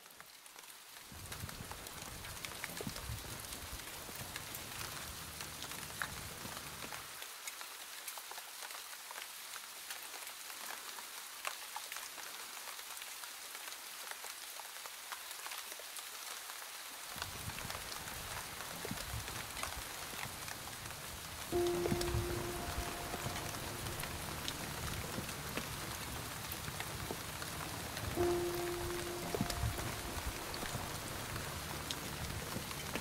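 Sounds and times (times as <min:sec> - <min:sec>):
steady rain: 0:00.0 - 0:33.0
low rumble: 0:21.6 - 0:33.0.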